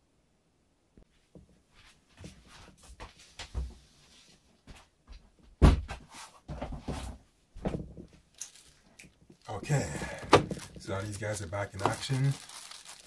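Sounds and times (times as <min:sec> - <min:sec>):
boxes and packaging rustling: 0:06.0 - 0:13.0.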